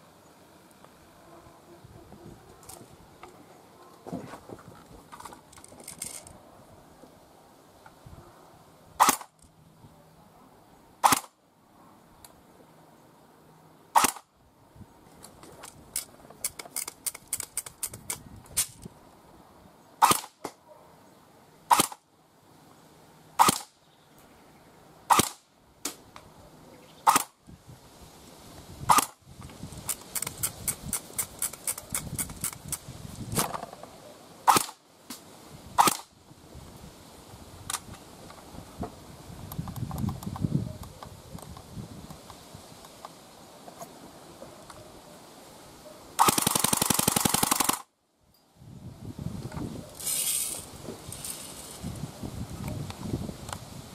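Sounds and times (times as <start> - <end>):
airsoft gun firing single shots: 9.0 - 9.4, 11.0 - 11.4, 13.9 - 14.3, 20.0 - 20.6, 21.7 - 22.0, 23.4 - 23.8, 25.1 - 26.0, 27.1 - 27.4, 28.9 - 29.2, 34.5 - 34.8, 35.8 - 36.1, 46.2 - 47.9.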